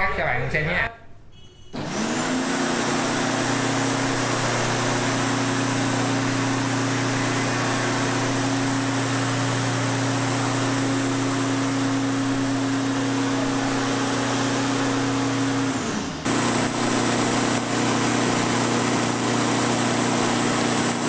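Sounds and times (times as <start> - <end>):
electric lawn mower motor running: 1.8 - 21.0.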